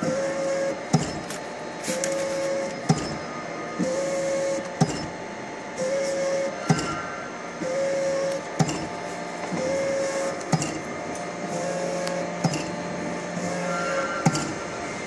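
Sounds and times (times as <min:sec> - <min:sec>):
constant mechanical hum: 0:00.0 - 0:15.0
printer whine: 0:00.0 - 0:15.0
sharp mechanical click: 0:12.0 - 0:12.8.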